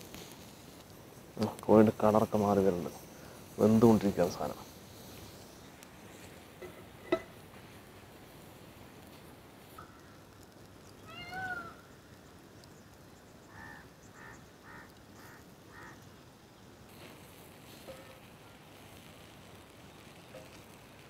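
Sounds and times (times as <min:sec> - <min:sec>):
animal cry: 0:11.0 - 0:11.8, 0:13.5 - 0:16.0.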